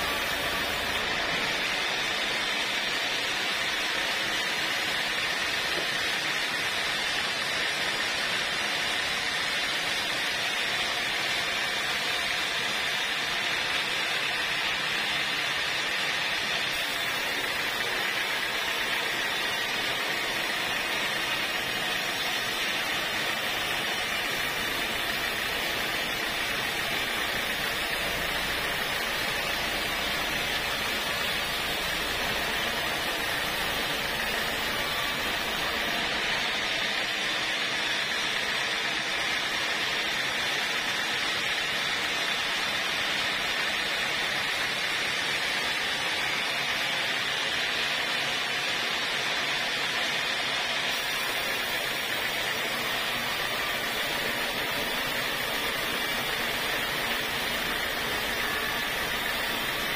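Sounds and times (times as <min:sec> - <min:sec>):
band saw cutting log: 0:00.0 - 0:02.9, 0:15.7 - 0:37.0, 0:50.9 - 0:59.9.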